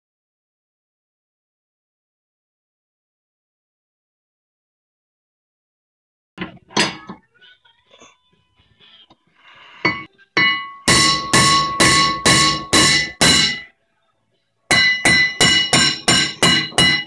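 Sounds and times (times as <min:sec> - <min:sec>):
hammer striking ringing metal rotor: 0:09.9 - 0:13.7, 0:14.7 - 0:17.0.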